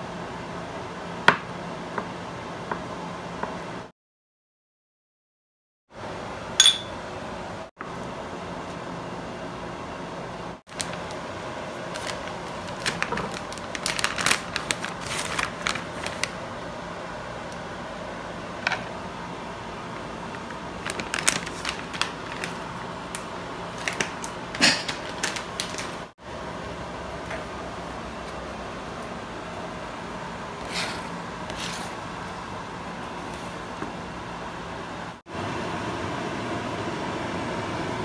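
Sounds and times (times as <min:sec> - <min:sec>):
plastic bag crinkling: 0:10.7 - 0:11.2, 0:11.8 - 0:16.4, 0:20.4 - 0:22.7, 0:23.7 - 0:26.1.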